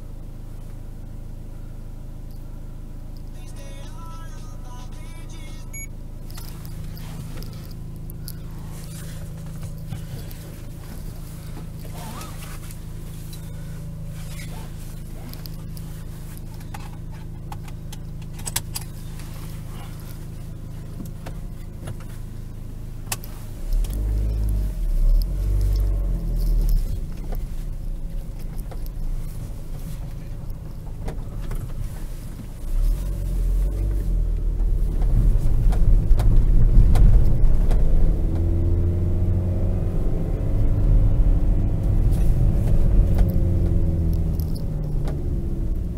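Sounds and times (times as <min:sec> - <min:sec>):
diesel van engine: 0:00.0 - 0:45.9
clicks inside cab: 0:16.4 - 0:19.0, 0:34.3 - 0:38.6, 0:41.8 - 0:45.3.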